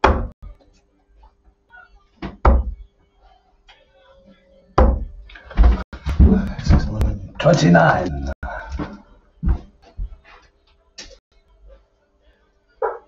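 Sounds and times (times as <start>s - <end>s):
sharp knocks and thuds: 0.0s - 0.4s, 2.2s - 2.8s, 4.8s - 7.1s.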